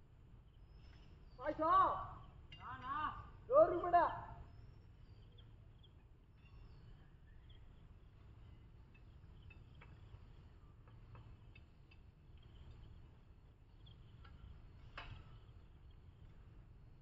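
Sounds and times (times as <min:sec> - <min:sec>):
faint chirps and ticks: 0:00.0 - 0:17.0.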